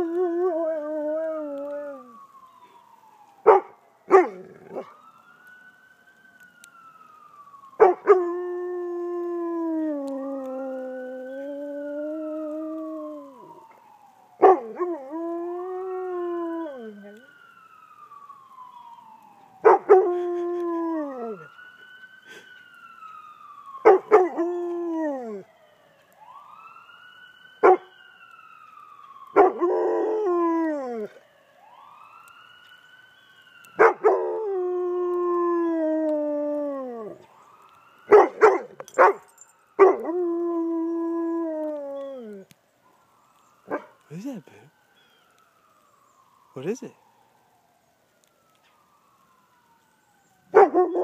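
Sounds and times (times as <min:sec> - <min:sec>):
ambulance siren wailing: 0:00.0 - 0:51.0
dog howling: 0:29.3 - 0:31.2.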